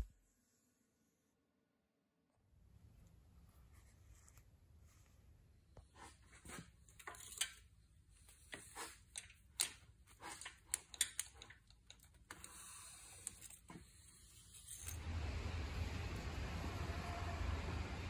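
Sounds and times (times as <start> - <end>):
hose clamps clicking and tapping: 8.5 - 12.5.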